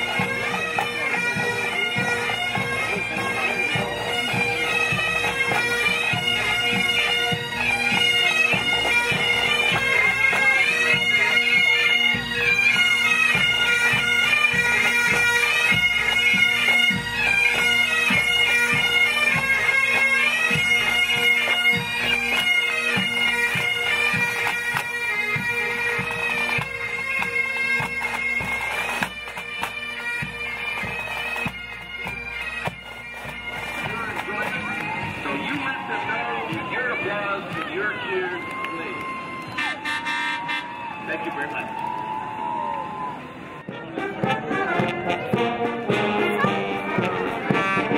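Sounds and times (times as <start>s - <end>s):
bagpipes playing a march: 0.0s - 47.9s
drums beating time: 13.4s - 40.1s, 43.6s - 47.9s.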